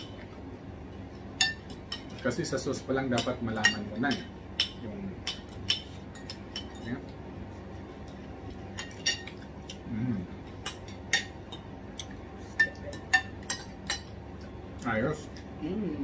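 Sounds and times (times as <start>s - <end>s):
person murmuring: 9.8s - 10.3s.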